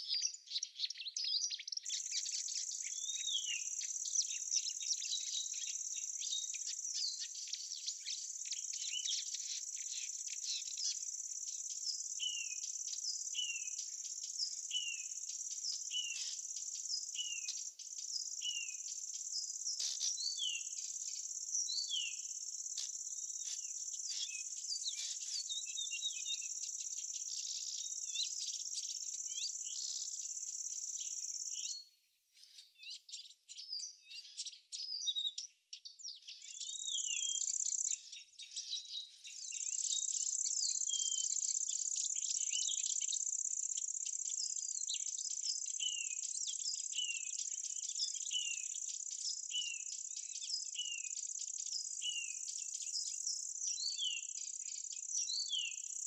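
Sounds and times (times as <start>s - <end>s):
insect chorus: 0.0s - 33.6s, 35.8s - 56.0s
birds chirping: 0.0s - 34.7s.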